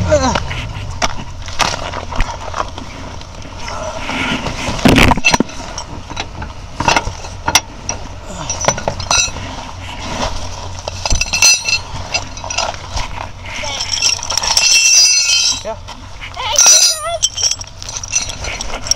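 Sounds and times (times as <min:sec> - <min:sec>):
scrapes and knocks under car: 0:00.3 - 0:18.9
tow chain clinking and rattling: 0:04.9 - 0:18.9.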